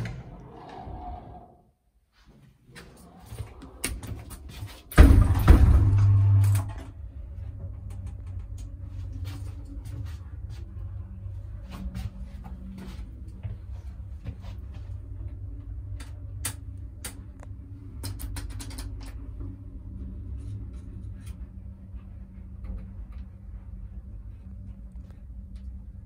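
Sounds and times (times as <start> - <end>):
elevator humming: 2.7 - 26.0
elevator clicks and rattles: 18.0 - 19.5.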